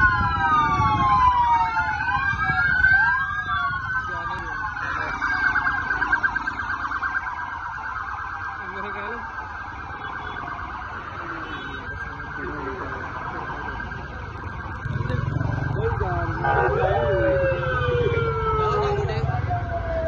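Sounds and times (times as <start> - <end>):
police sirens: 0.0 - 20.0
motorcycle engines running: 12.0 - 20.0.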